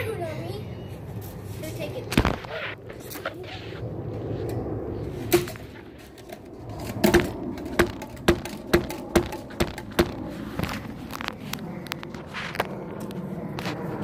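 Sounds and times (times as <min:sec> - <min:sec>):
sharp ringing knocks: 0:07.1 - 0:10.2.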